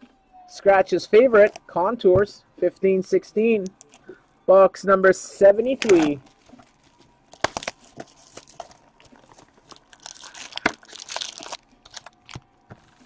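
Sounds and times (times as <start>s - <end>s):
plastic wrap crinkling and tearing: 5.8s - 13.0s.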